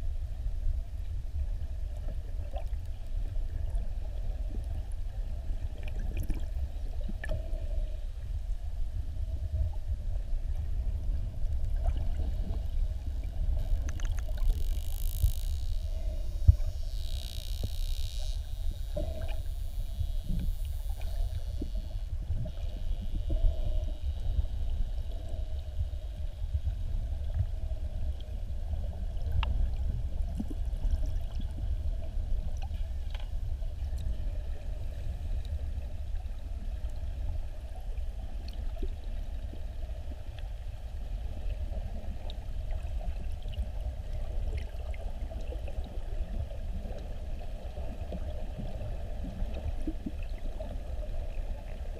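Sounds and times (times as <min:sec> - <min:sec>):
faint steady hum: 0:00.0 - 0:51.9
underwater water rumble: 0:00.0 - 0:51.9.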